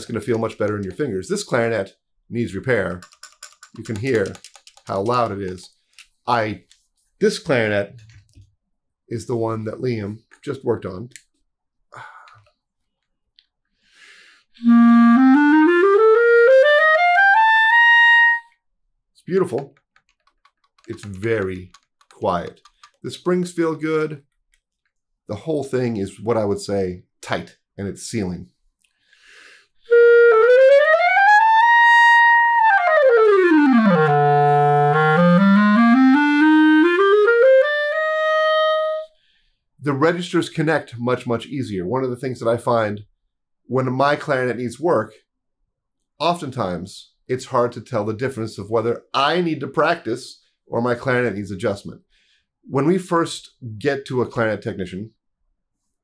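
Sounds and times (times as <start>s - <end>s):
clarinet playing rising scale: 14.6s - 18.5s, 29.9s - 39.1s.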